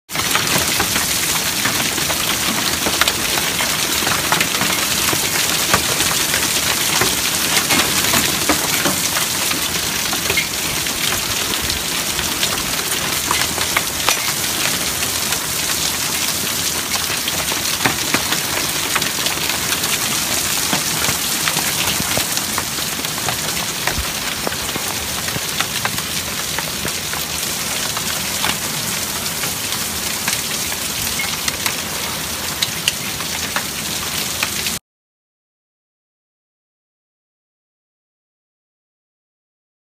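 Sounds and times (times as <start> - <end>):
hailstones striking: 0.2 - 33.8
heavy rain hissing: 4.0 - 34.8.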